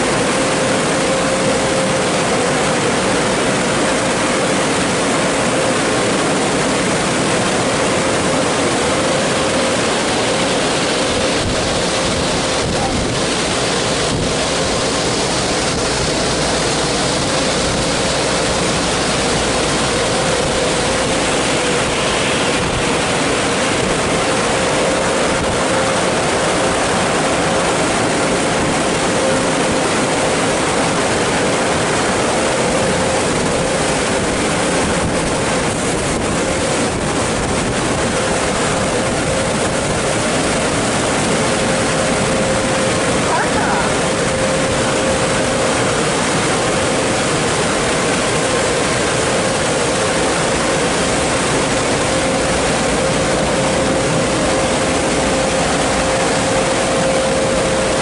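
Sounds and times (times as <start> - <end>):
machine hum: 0.0 - 58.0
spraying water rushing: 0.0 - 58.0.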